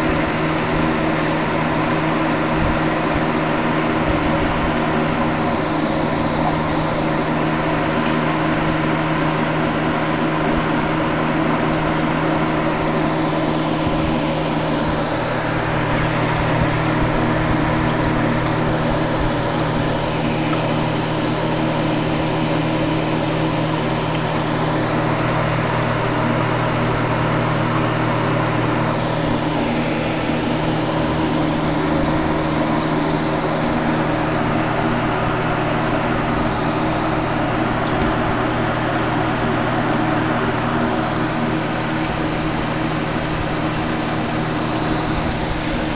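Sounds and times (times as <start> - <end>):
filter electric hum: 0.0 - 45.9.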